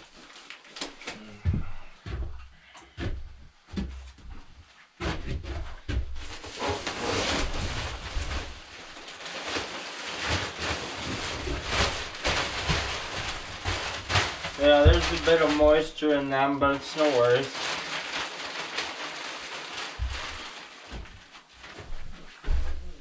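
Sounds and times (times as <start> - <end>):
knocks and thumps: 5.0 - 6.9, 19.9 - 21.2
wood shavings rustling: 6.2 - 22.0.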